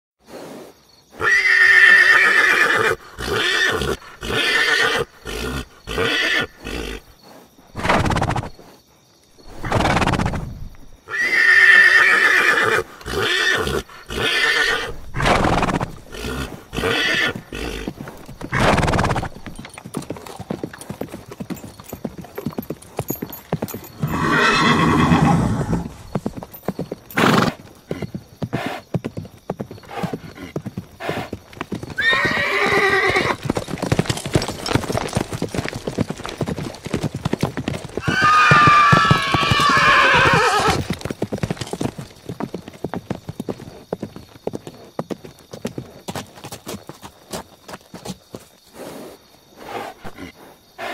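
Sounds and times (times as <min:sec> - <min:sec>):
horses neighing: 0:01.1 - 0:07.2, 0:07.8 - 0:08.5, 0:09.5 - 0:29.2, 0:29.8 - 0:42.4
horse hooves clip-clopping: 0:15.5 - 0:50.2.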